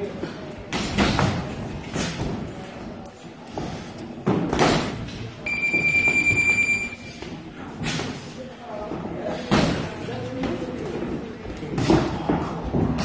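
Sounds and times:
high-pitched timer beep: 5.5s - 7.1s.

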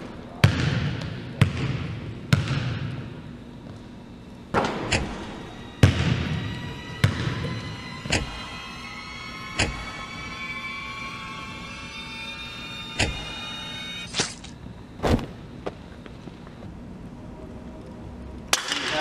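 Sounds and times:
basketball bouncing on gym floor: 0.4s - 3.8s, 5.8s - 7.6s
rising held music tone: 5.0s - 14.6s.

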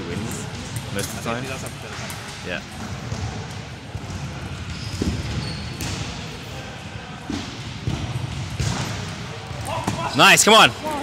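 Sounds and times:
murmur of large hall: 0.0s - 11.0s.

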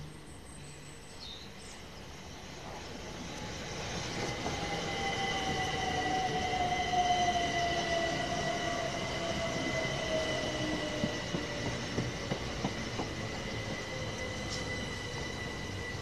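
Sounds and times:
train high whine: 0.0s - 16.0s
wheels clicking on rail joints: 7.1s - 15.9s.

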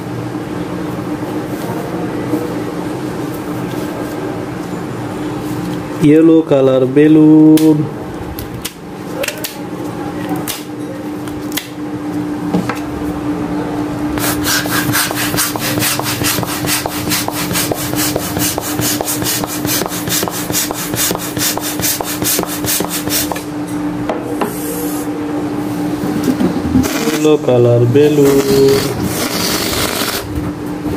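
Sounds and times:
steady low hum: 0.0s - 30.9s
balloon pump strokes: 14.2s - 23.4s, 26.8s - 27.4s, 28.2s - 30.3s.

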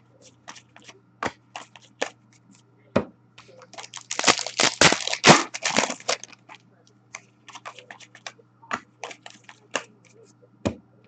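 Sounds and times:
cards clicking and tapping: 0.4s - 2.2s, 7.5s - 10.8s
foil wrapper crinkling: 3.6s - 6.6s, 7.5s - 8.3s, 9.0s - 9.6s.

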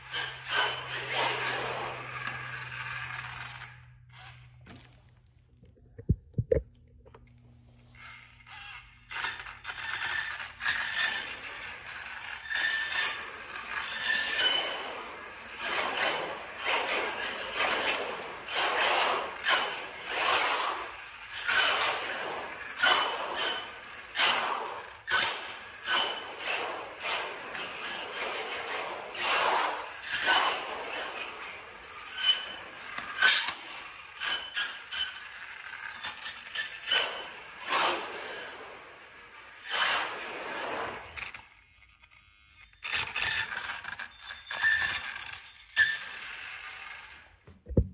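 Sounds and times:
rc car motor whining: 0.0s - 4.6s, 7.9s - 47.4s
tyres scrabbling on concrete: 9.2s - 41.5s.

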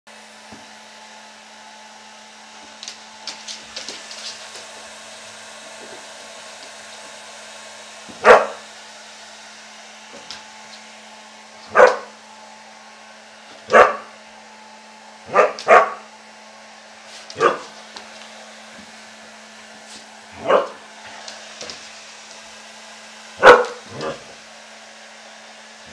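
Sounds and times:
hair dryer whirring: 0.1s - 25.9s
dog barking: 8.2s - 8.6s, 11.7s - 12.1s, 13.7s - 14.1s, 15.3s - 16.1s, 17.4s - 17.7s, 20.4s - 20.8s, 23.4s - 24.3s.

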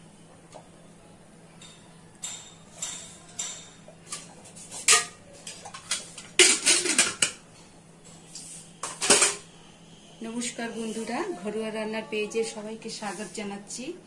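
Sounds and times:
metal cookware clattering: 1.6s - 7.4s, 8.8s - 9.4s.

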